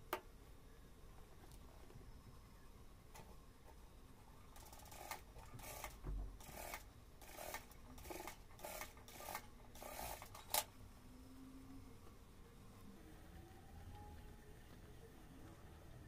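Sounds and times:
sewing machine stitching: 0:04.6 - 0:10.6.

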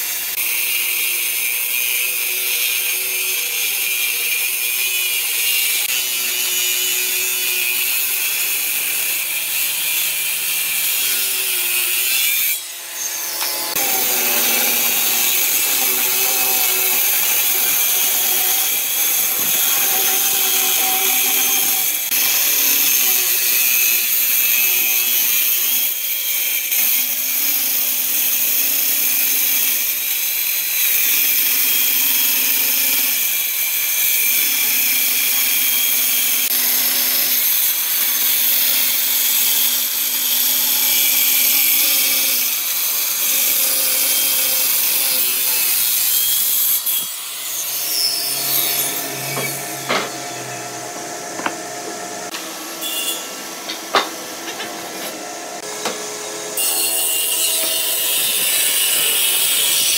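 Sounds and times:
circular saw cutting wood: 0:00.0 - 0:59.9.

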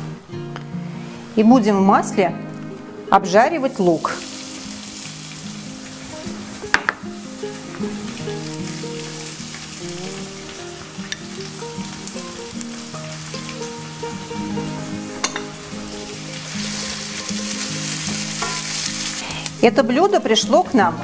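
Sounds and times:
onion sizzling in frying pan: 0:00.0 - 0:21.0
soft background music: 0:00.0 - 0:21.0.

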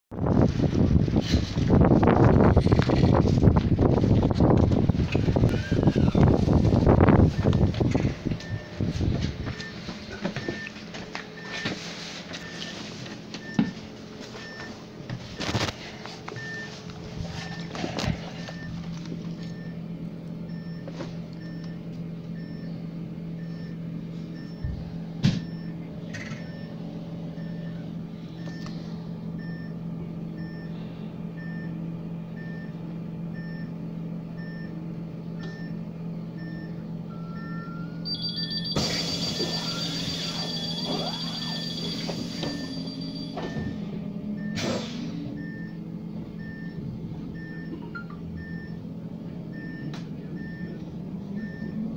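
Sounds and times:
short repeating beep: 0:37.2 - 0:43.8.

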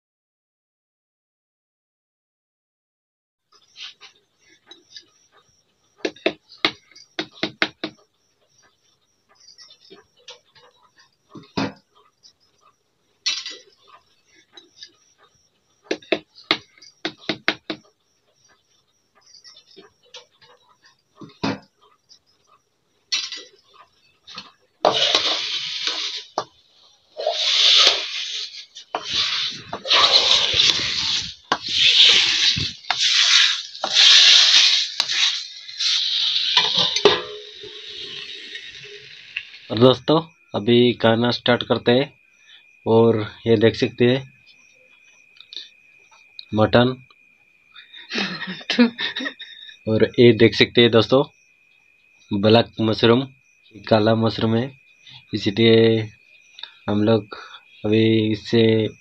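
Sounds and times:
steady hiss: 0:24.8 - 0:44.3
ladle scraping: 0:24.9 - 0:26.4, 0:27.2 - 0:39.6.

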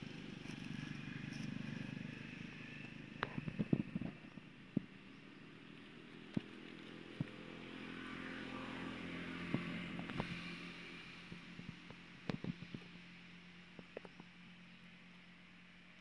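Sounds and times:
steady low hum: 0:00.0 - 0:16.0
vehicle engine passing: 0:05.6 - 0:13.8.

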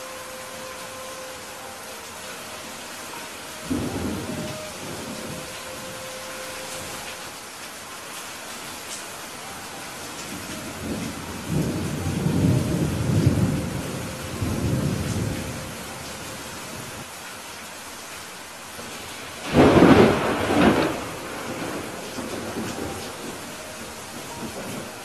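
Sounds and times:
steady rain: 0:00.0 - 0:25.0
rolling thunder rumble: 0:10.3 - 0:16.1, 0:19.4 - 0:25.0
loud thunderclap: 0:19.4 - 0:23.4.

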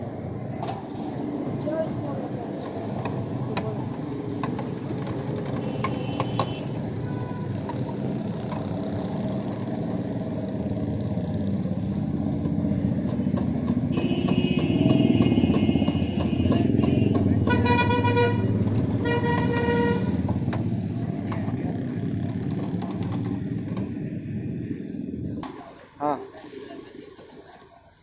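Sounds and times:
street traffic: 0:00.0 - 0:28.0
buzzing vehicle horn: 0:05.6 - 0:07.6, 0:13.9 - 0:20.3.

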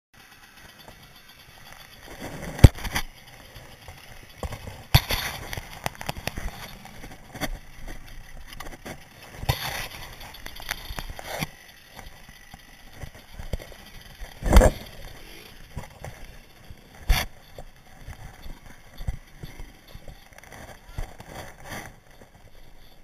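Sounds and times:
rough scraping: 0:00.6 - 0:23.0.

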